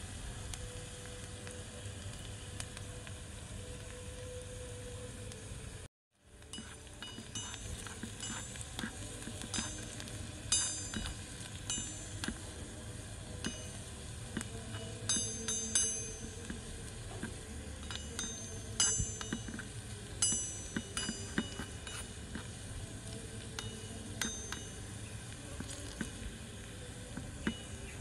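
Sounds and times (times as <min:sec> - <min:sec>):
faint sizzle: 0:00.0 - 0:28.0
metal spoon clinking on wok: 0:06.5 - 0:12.4, 0:13.4 - 0:13.8, 0:14.7 - 0:16.6, 0:17.8 - 0:22.2, 0:23.5 - 0:25.0.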